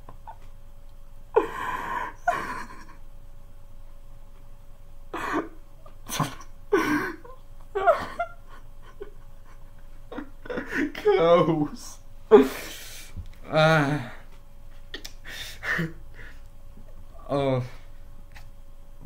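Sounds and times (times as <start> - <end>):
man's stifled laughter: 1.4 - 3.0, 5.2 - 11.7.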